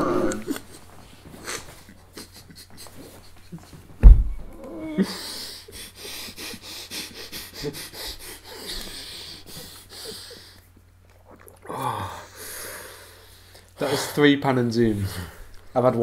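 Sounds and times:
people laughing breathlessly: 0.0 - 4.0, 4.8 - 10.7.

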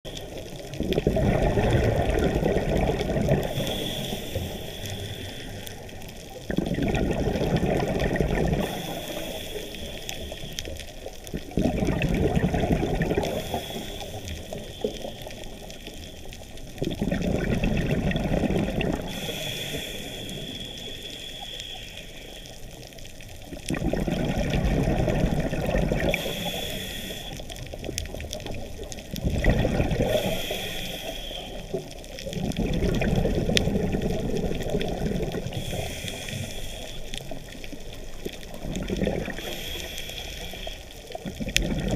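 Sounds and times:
exhaled bubbles bursting: 0.2 - 3.8, 6.3 - 9.0, 11.1 - 13.8, 16.6 - 19.2, 23.5 - 26.4, 27.8 - 30.4, 31.6 - 36.0, 37.4 - 39.5, 41.2 - 41.9
regulator inhalation hiss: 3.4 - 6.0, 8.6 - 10.7, 13.2 - 16.3, 19.0 - 22.8, 26.0 - 27.6, 30.0 - 31.9, 35.5 - 38.0, 39.3 - 41.2.

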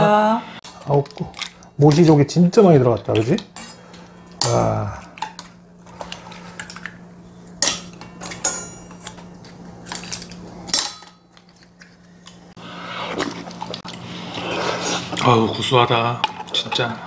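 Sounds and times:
utensils clinking on steel bowls: 0.7 - 12.4, 15.1 - 17.0.

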